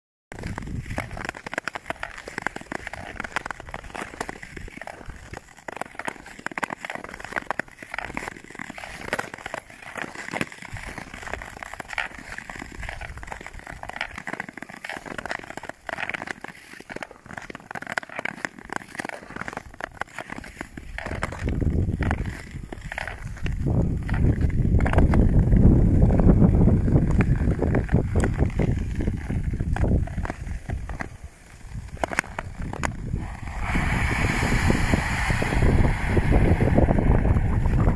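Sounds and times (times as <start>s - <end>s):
ice crackling and breaking: 0.4s - 37.9s
low rumble: 33.0s - 37.9s.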